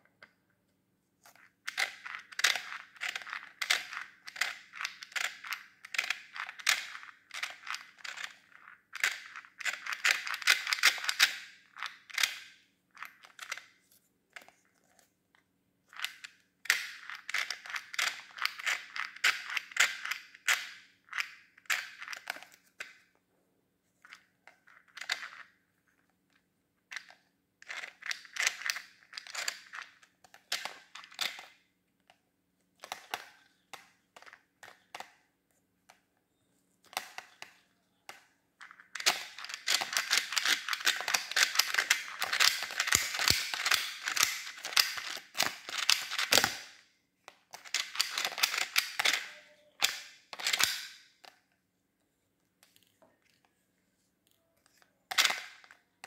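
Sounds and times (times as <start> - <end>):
faint low hum: 29.8 - 42.8.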